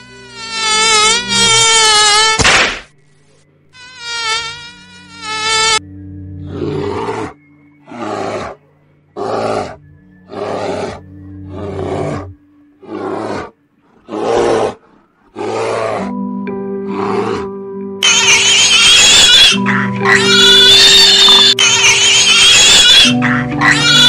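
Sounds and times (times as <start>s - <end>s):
high buzzing tone: 0.0s - 2.4s, 3.7s - 6.5s
musical drone: 4.7s - 13.8s, 15.7s - 24.0s
bears growling: 6.4s - 17.6s, 19.0s - 24.0s.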